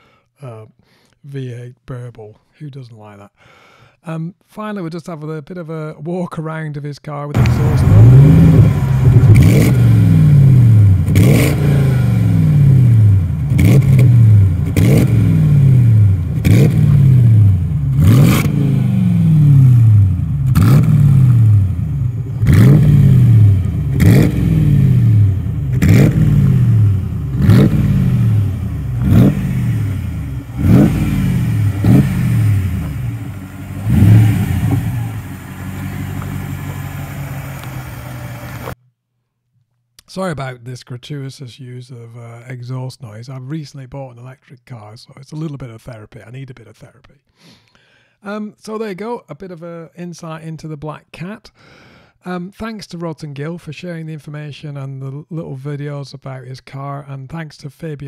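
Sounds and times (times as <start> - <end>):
car engine revving: 7.4 - 38.8.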